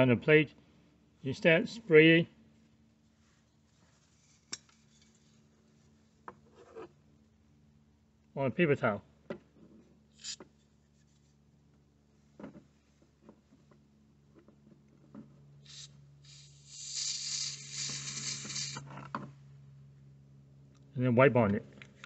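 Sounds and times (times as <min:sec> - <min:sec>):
aerosol spray hissing: 0:15.7 - 0:18.8.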